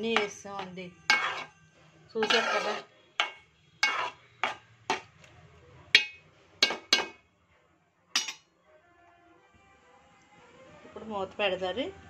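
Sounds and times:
ladle clinking on metal pot: 0:00.0 - 0:01.5, 0:02.2 - 0:05.1, 0:06.0 - 0:07.2, 0:08.2 - 0:08.4
ladle stirring thick curry: 0:00.1 - 0:01.5, 0:02.2 - 0:05.1.

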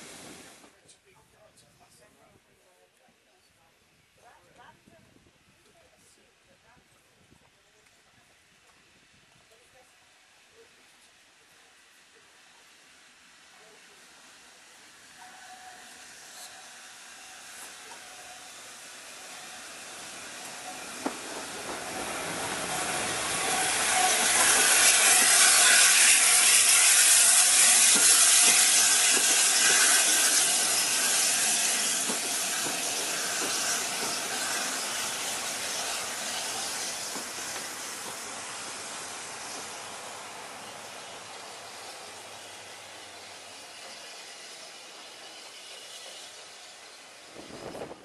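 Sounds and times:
loud hiss of steam: 0:00.0 - 0:00.7, 0:12.0 - 0:48.0
steam locomotive passing: 0:00.0 - 0:00.8, 0:07.6 - 0:48.0.

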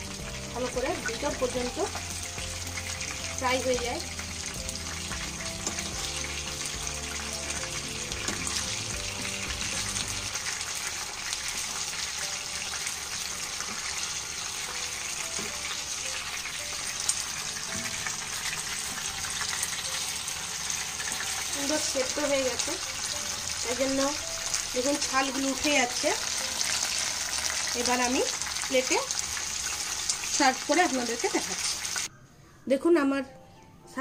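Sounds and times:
fish sizzling in hot oil: 0:00.0 - 0:32.1.

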